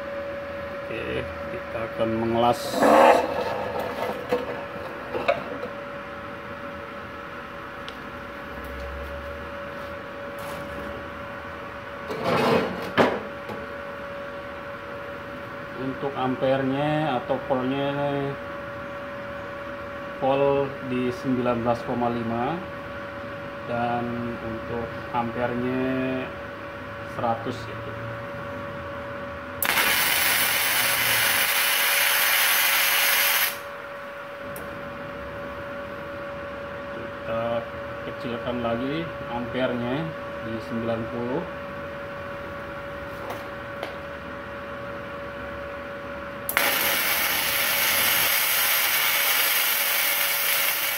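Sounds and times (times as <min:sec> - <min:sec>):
welding machine hum: 0:29.6 - 0:33.8, 0:46.4 - 0:50.9.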